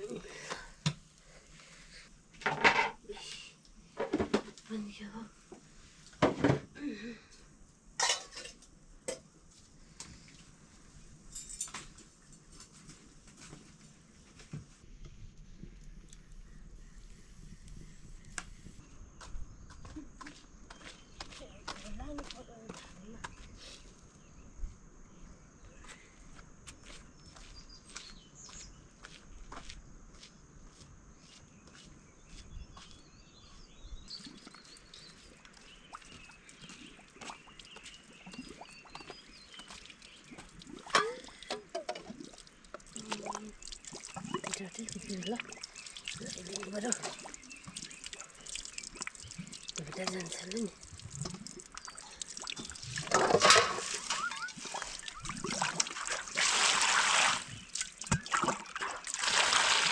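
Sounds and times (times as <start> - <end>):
small birds chirping: 4.6 - 5.8, 15.0 - 56.4, 57.4 - 59.0
water trickling and splashing: 33.4 - 59.9.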